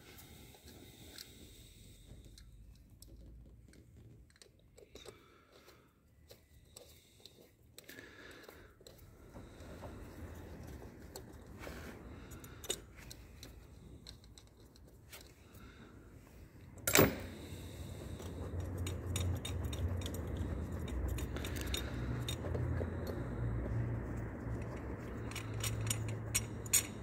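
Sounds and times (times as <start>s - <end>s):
metallic clicks of tools: 12.3s - 15.6s, 16.7s - 23.3s, 24.5s - 27.0s.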